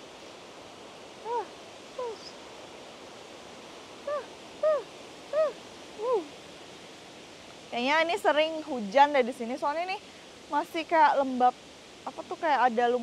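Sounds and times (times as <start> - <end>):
waterfall rushing: 0.0 - 8.7
short pitched calls: 1.2 - 2.4, 4.0 - 6.3.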